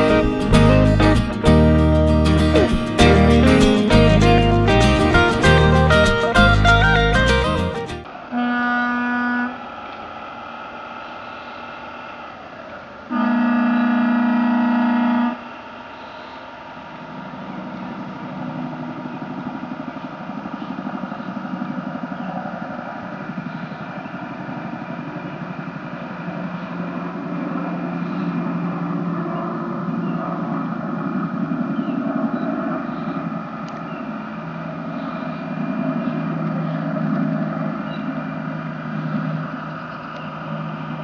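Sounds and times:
model boat horn blasts: 8.3 - 9.6, 13.1 - 15.5
model boat engine pulsing: 12.8 - 41.0.

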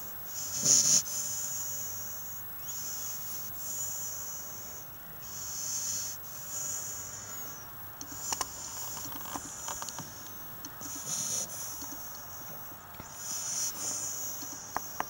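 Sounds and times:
puppy breathing: 0.3 - 15.0
small clicks: 8.0 - 13.1.

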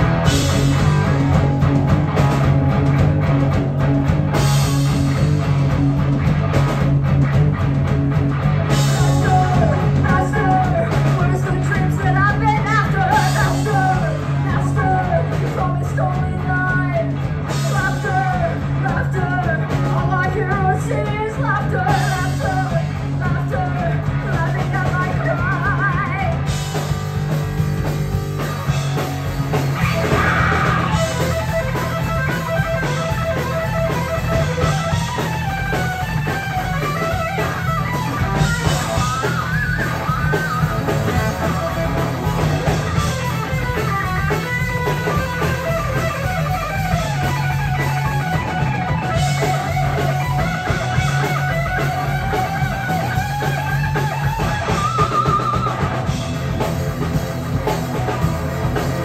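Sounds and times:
bass guitar: 0.0 - 59.0
drum kit: 0.0 - 59.0
electric guitar lines: 0.0 - 59.0.

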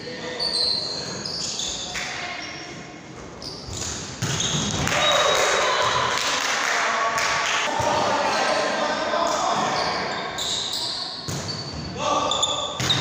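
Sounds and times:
players' voices in a hall: 0.0 - 13.0
shoes squeaking on wooden court: 0.3 - 4.8, 9.6 - 13.0.

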